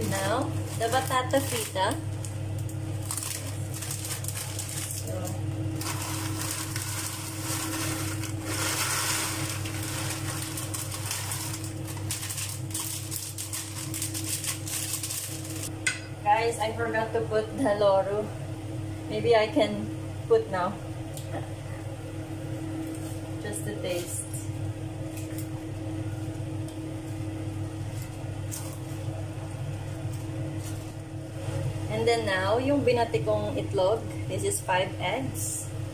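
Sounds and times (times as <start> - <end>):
steady low hum: 0.0 - 35.9
potato sticks crackling: 5.8 - 15.7.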